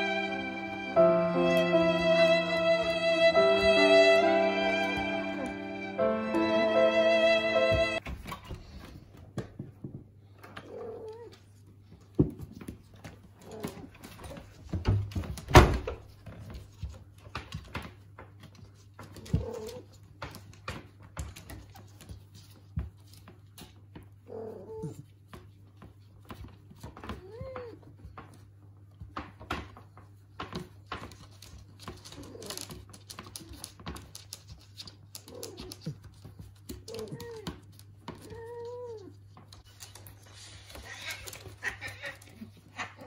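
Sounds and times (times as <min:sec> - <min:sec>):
faint dog and cat cries: 0:24.1 - 0:25.2, 0:26.8 - 0:28.1, 0:35.1 - 0:39.4, 0:40.6 - 0:43.0.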